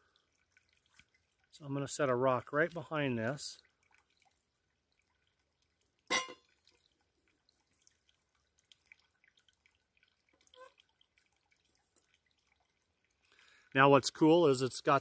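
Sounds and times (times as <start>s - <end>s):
metallic clink of kettle: 6.1s - 6.5s.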